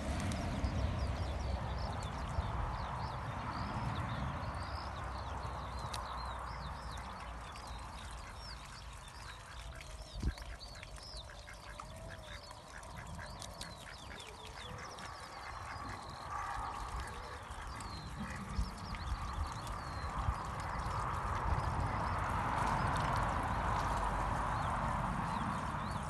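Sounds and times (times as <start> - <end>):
low wind rumble: 0.0 - 26.0
water splashing: 0.0 - 26.0
small birds chirping: 0.3 - 26.0
ducks quacking: 8.0 - 19.3.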